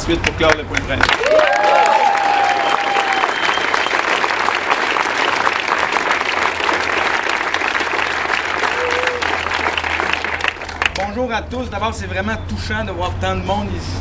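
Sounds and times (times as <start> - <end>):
crowd applauding: 0.2 - 11.2
whistle: 2.5 - 4.1.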